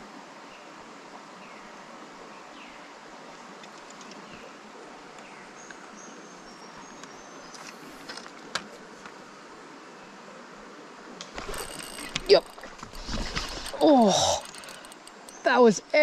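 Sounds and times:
creek water flowing: 0.0s - 16.0s
light clicks: 11.2s - 15.5s.

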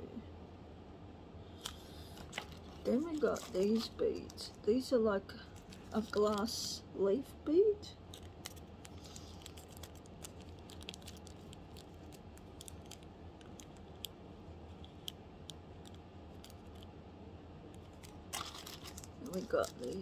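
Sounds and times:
faint low hum: 0.0s - 20.0s
beads shifting in plastic bag: 2.1s - 4.6s, 8.1s - 13.8s, 17.9s - 20.0s.

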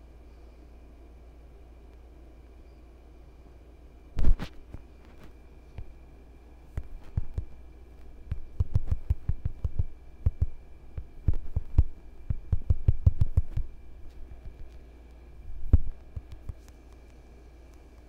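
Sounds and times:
faint high hum: 0.0s - 18.0s
fingertips tapping touchscreen: 8.3s - 13.7s, 15.7s - 17.8s.

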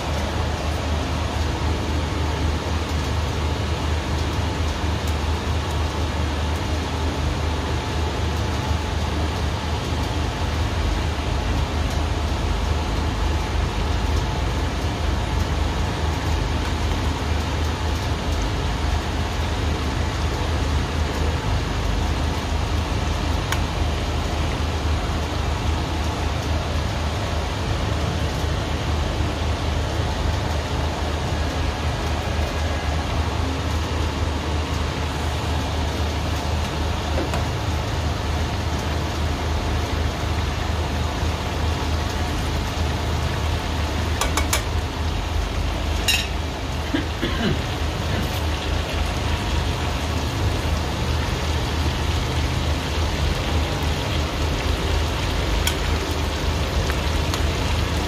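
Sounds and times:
food sizzling in a frying pan: 34.8s - 58.0s.

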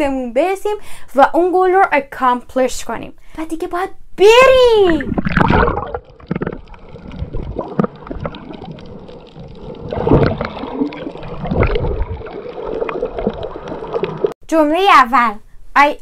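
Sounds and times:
underwater gurgling and bubbling: 4.9s - 14.4s
dull underwater thumps: 5.0s - 14.4s.

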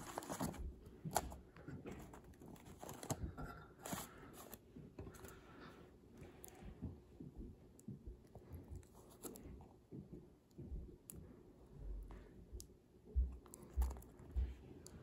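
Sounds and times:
plastic rustling in hands: 0.0s - 5.3s.

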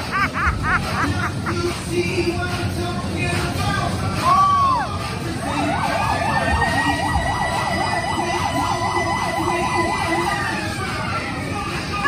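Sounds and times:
electronic siren yelping: 5.4s - 10.9s
steady siren tone: 5.4s - 11.0s.

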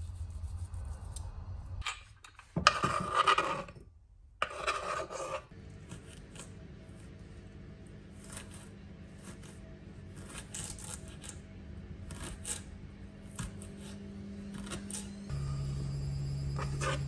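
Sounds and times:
knife scraping chopping board: 2.6s - 3.8s, 4.4s - 6.5s, 8.1s - 11.4s, 12.0s - 12.7s, 16.6s - 17.0s.

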